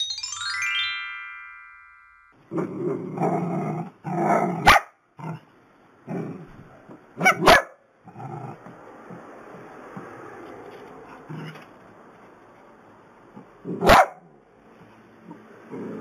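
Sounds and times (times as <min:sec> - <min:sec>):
small dogs barking and growling: 0:02.5 - 0:08.8.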